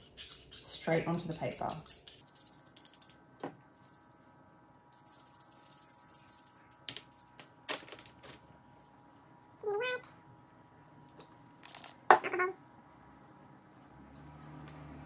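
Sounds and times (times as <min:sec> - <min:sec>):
metal tool clicking and scraping: 0:00.0 - 0:03.2.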